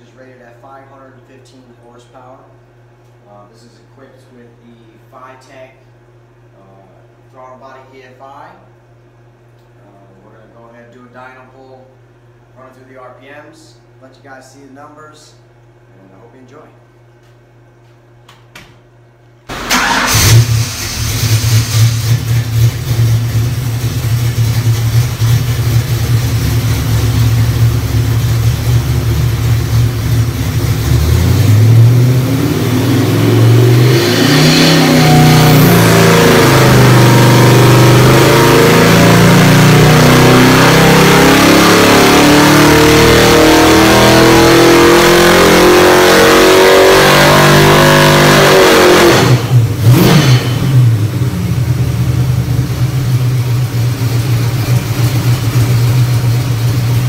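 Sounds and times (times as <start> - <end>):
engine revving on dyno: 19.5 - 57.0.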